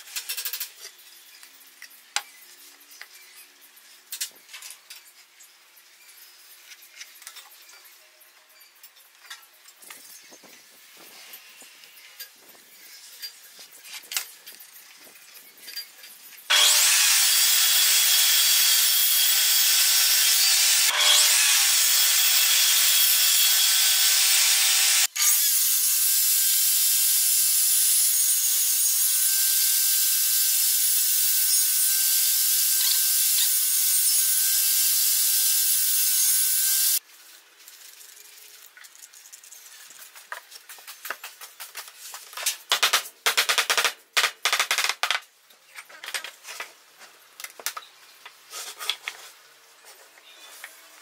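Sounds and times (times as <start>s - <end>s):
table saw cutting wood: 16.5s - 37.0s.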